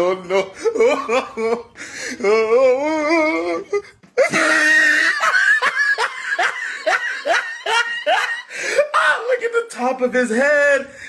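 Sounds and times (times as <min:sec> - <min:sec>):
hearty laughter: 0:04.1 - 0:08.9.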